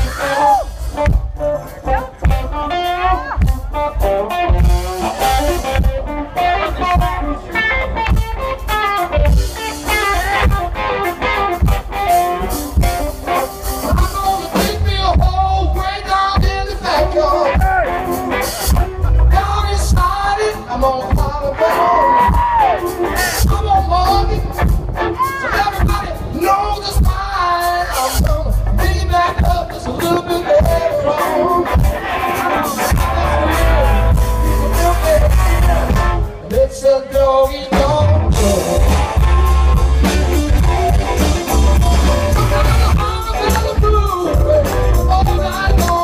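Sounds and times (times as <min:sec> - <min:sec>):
drum kit: 0:00.0 - 0:46.0
electric guitars: 0:00.0 - 0:46.0.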